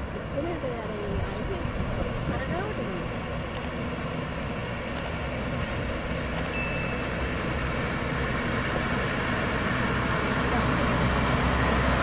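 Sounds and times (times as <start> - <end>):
bus engine rumbling: 0.0 - 12.0
faint clicks: 3.5 - 3.8
short high beep: 6.4 - 7.2.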